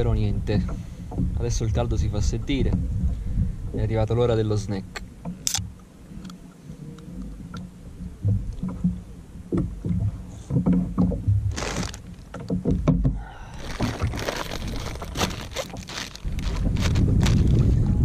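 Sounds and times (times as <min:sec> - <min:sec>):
soft handling bumps: 0:00.0 - 0:18.0
plastic wrapper crinkling: 0:11.5 - 0:12.2, 0:13.5 - 0:17.8.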